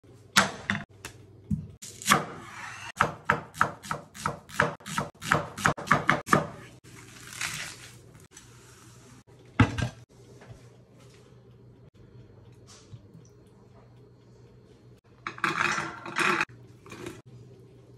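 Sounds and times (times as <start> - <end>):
knife chopping onion on board: 2.0 - 6.7
pot and lid clattering: 15.3 - 16.5.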